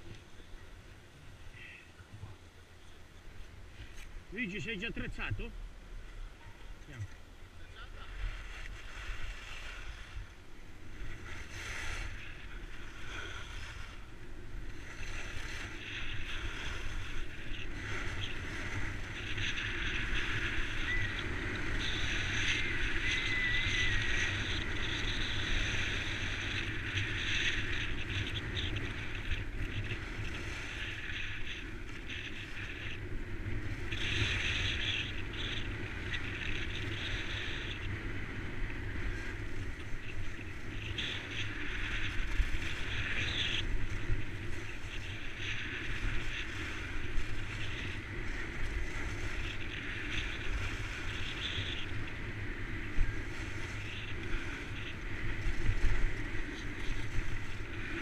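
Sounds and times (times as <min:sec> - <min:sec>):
wind on microphone: 0:03.3 - 0:58.0
skis scraping over snow: 0:07.8 - 0:58.0.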